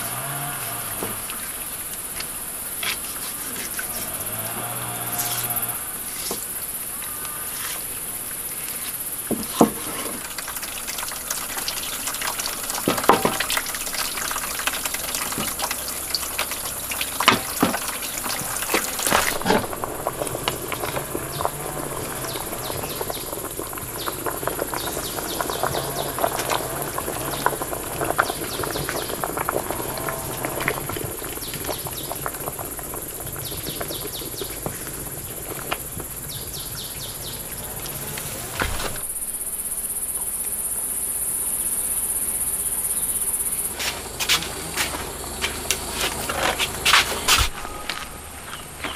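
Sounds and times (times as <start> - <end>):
high insect chorus: 0.0 - 48.9
water sounds: 0.0 - 48.9
knocks and clatter: 9.2 - 32.8.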